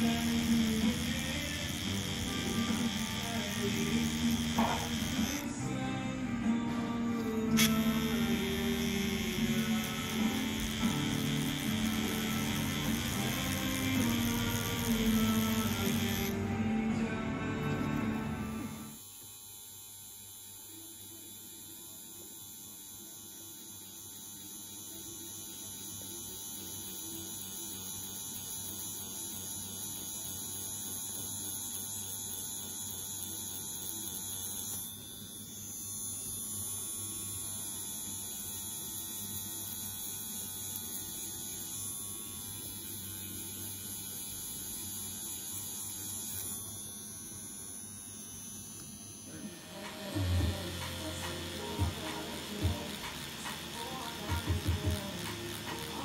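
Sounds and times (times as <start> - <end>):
tattoo machine humming: 0.0 - 56.0.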